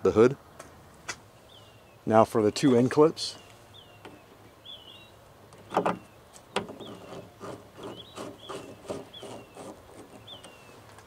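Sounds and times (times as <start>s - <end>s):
small bird chirping: 2.6s - 10.9s
screwdriver rubbing turns: 6.6s - 10.7s.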